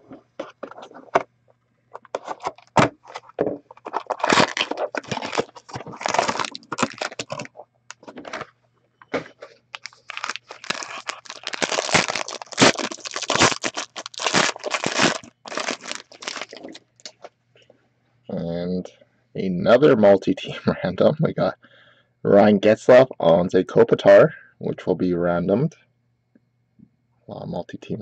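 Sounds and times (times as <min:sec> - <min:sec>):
foil wrapper crinkling and tearing: 0:03.8 - 0:07.6, 0:09.7 - 0:17.1.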